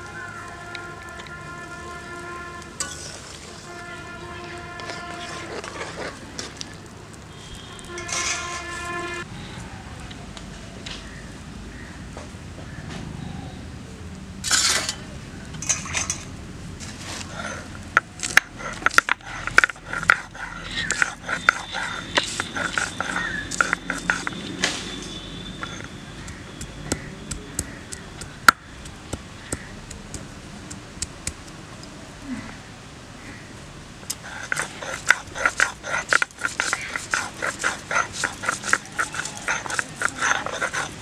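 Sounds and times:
stone knocking and scraping on stone: 18.0s - 24.6s, 25.6s - 31.1s, 34.4s - 41.0s.

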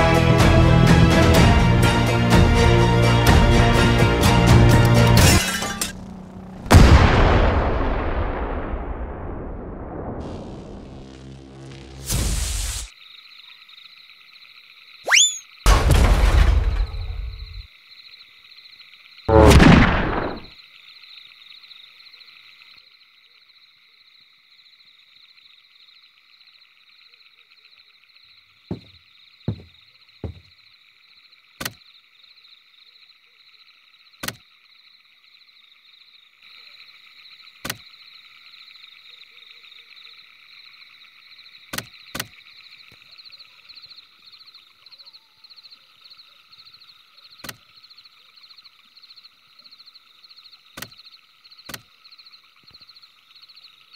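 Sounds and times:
frog or insect chorus trilling: 12.9s - 15.7s, 17.0s - 19.4s, 20.1s - 53.9s
dull thumps: 28.7s - 30.5s.

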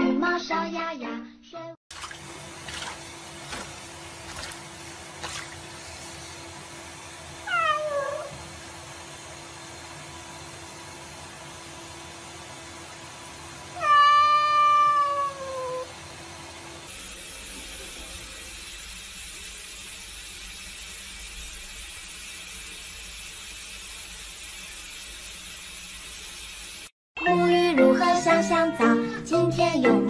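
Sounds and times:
tap water running into sink: 1.9s - 11.7s, 16.9s - 26.9s
cat meowing: 7.4s - 8.4s, 13.8s - 15.9s.

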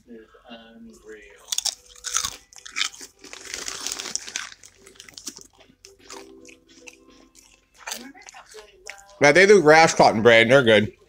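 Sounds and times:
chips and crackers crunching: 1.4s - 9.1s.

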